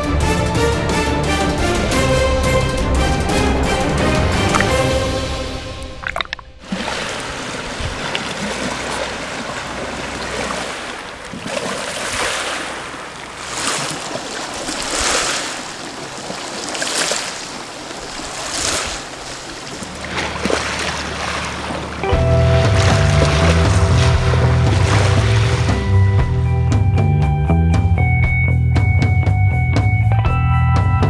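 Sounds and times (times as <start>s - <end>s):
waves washing onto pebbles: 6.0s - 25.8s.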